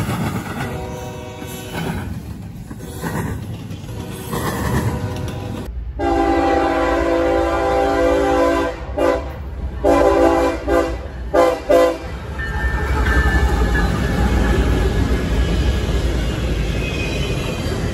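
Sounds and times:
freight train wheels rumbling: 0.0 - 17.9
locomotive air horn blasts: 0.7 - 1.8, 3.9 - 12.1.

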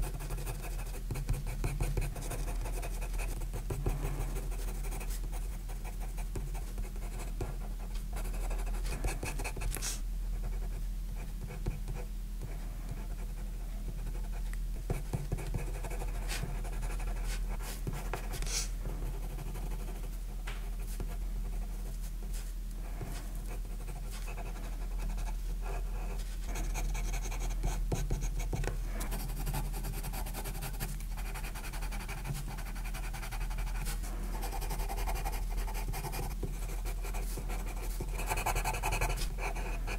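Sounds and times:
pencil scratching on paper: 0.0 - 7.4, 14.0 - 20.0, 23.1 - 39.9.

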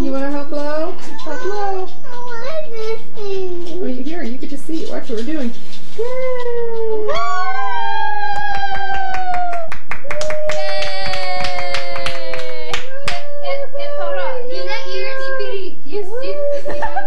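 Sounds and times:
people cheering yay: 6.6 - 15.3
people clapping: 7.1 - 13.6.

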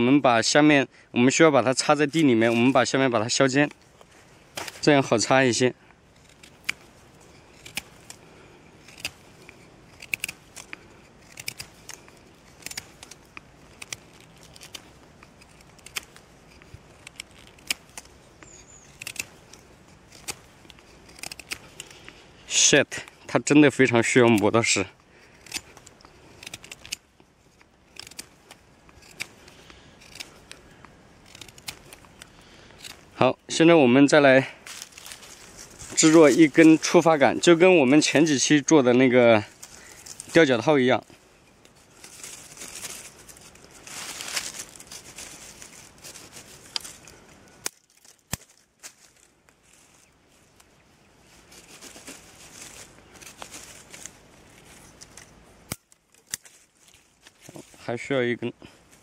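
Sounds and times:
knife scraping wood: 6.1 - 22.4, 24.0 - 33.2.

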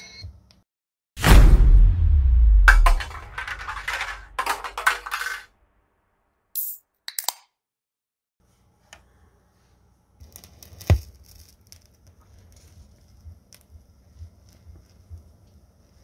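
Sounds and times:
low rumble: 1.2 - 5.0
vinyl surface hiss and crackle: 9.6 - 16.0.

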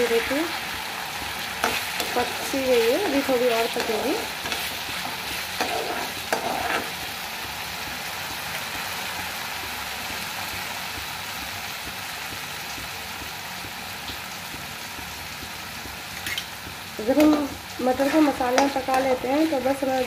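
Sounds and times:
food sizzling in a pan: 0.0 - 20.0
spatula scraping a pan: 0.1 - 7.3, 16.2 - 20.0.

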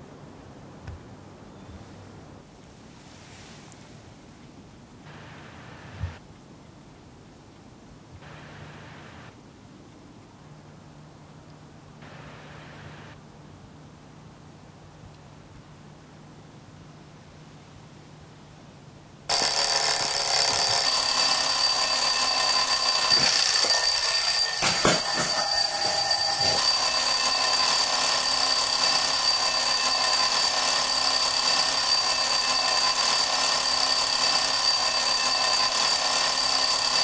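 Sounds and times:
alarm clock bell ringing: 19.3 - 37.0.

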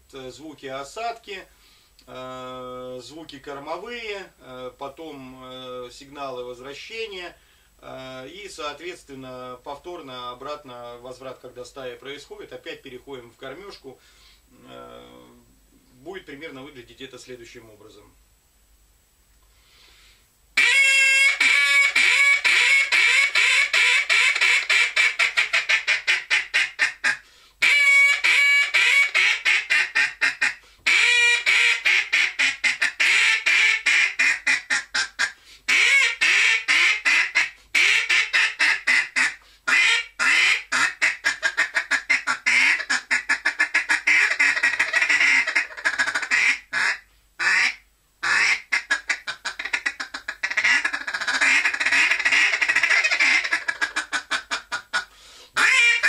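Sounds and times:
duck call quacking: 20.6 - 56.0.

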